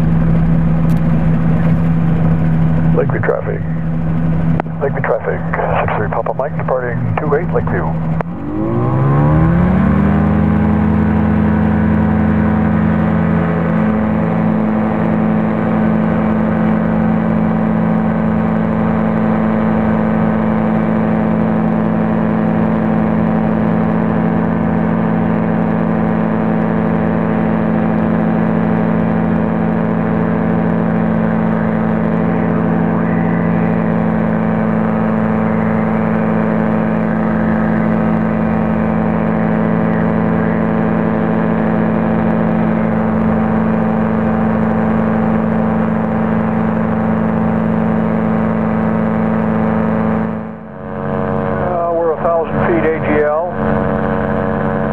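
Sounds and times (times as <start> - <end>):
low rumble: 0.0 - 17.0, 31.0 - 54.9
light aircraft engine running: 0.0 - 54.9.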